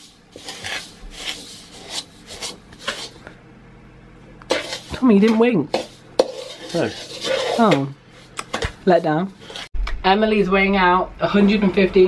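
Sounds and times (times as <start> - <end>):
metal spoon scraping in mixing bowl: 0.0 - 3.2, 4.5 - 9.7.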